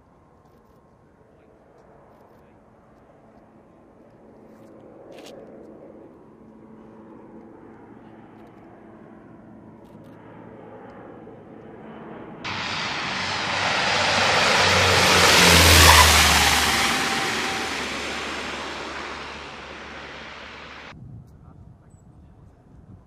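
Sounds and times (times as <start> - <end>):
turboprop aircraft engine noise: 5.5 - 20.9
distant aircraft hum: 7.7 - 20.9.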